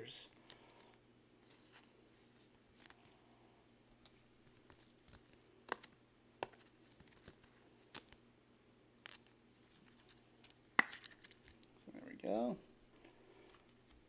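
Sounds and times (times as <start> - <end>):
gloved hands tapping a card: 10.8 - 11.4.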